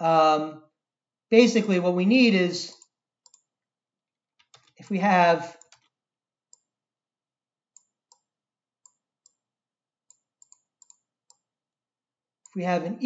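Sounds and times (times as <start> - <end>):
computer mouse clicks: 2.6 - 3.5, 4.4 - 4.9, 5.5 - 6.7, 7.7 - 9.4, 10.1 - 11.5.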